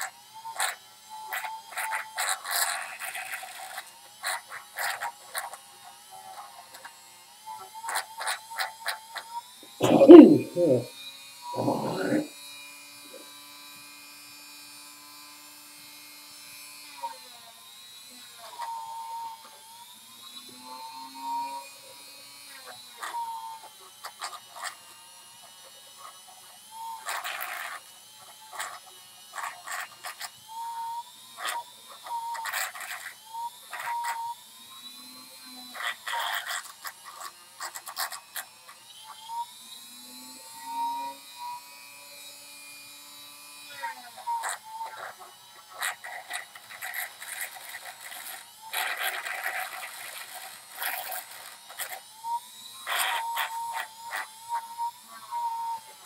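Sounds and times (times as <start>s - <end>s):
rotary tool running: 0.0s - 10.0s, 10.6s - 56.0s
bit grinding bursts: 0.0s - 17.2s, 17.8s - 56.0s.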